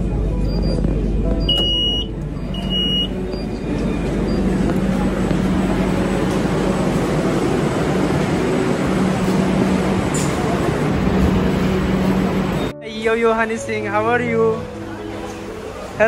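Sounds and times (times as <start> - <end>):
train and station noise: 0.0 - 16.0
high electronic door beeps: 0.4 - 4.8.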